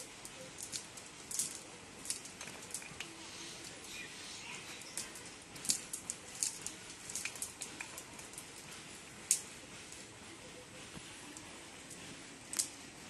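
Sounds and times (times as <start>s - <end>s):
net mesh clicking and rustling: 0.0s - 4.0s, 4.8s - 8.6s.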